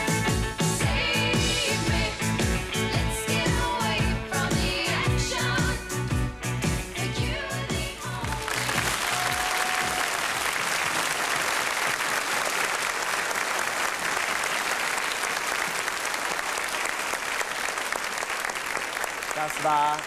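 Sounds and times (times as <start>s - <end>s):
audience applauding: 8.2s - 20.0s.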